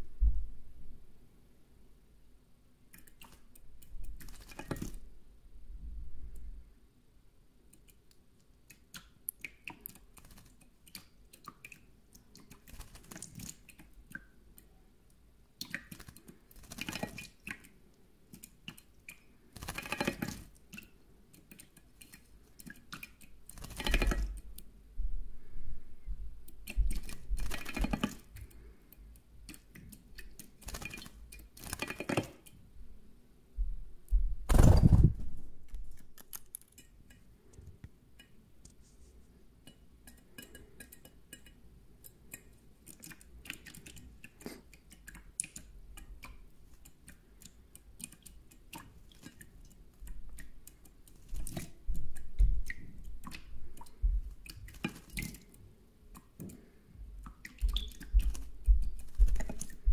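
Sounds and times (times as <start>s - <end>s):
bird splashing in metal dish: 3.1s - 5.0s, 12.4s - 13.9s, 15.6s - 17.7s, 18.6s - 20.9s, 21.5s - 24.4s, 26.6s - 28.3s, 29.5s - 32.5s, 50.3s - 55.6s.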